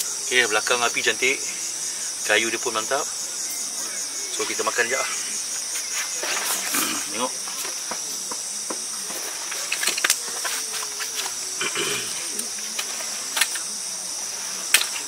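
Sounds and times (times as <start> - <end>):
night insects chorus: 0.0 - 15.0
rustling of things handled: 9.0 - 11.6.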